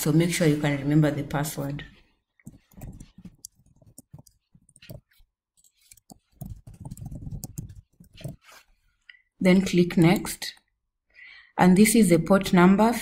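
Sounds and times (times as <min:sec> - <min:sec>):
keyboard keys clicking: 0:02.5 - 0:08.4.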